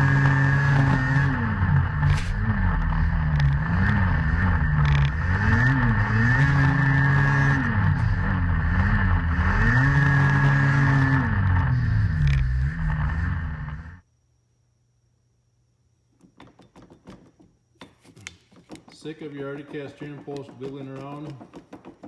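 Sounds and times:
snowmobile engine revving: 0.0 - 14.0.

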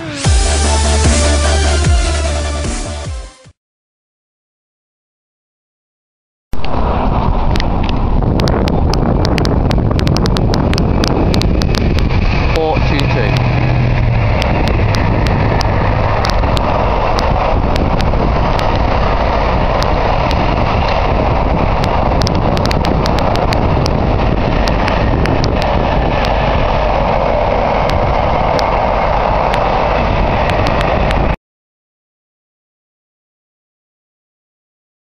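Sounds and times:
freight wagons rumbling on rails: 6.6 - 31.4.

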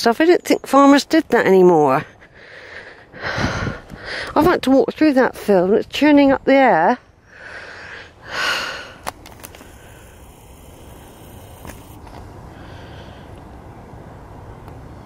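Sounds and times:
wind rumble on microphone: 3.2 - 4.6
person breathing out loudly: 7.3 - 9.0.

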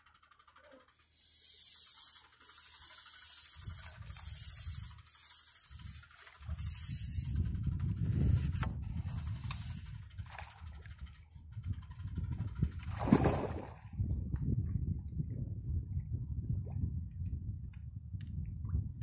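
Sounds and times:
low uneven rumble: 0.0 - 19.0
fishing pole sections sliding: 1.7 - 7.4, 8.2 - 10.6.

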